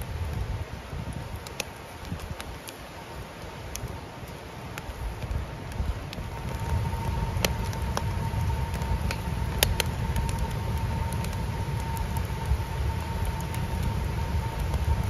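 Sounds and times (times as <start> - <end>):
wood fire crackling and popping: 0.0 - 15.0.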